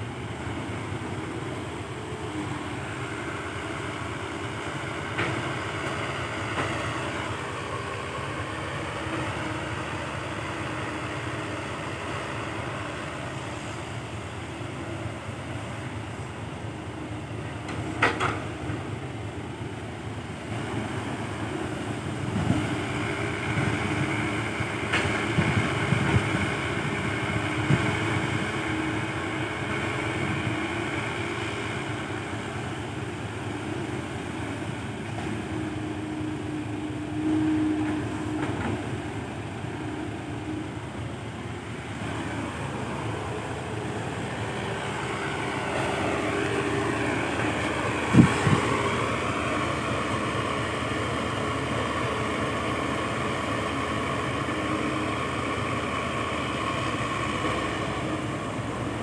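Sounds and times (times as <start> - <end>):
excavator diesel engine under load: 0.0 - 59.0
hydraulic whine: 35.2 - 59.0.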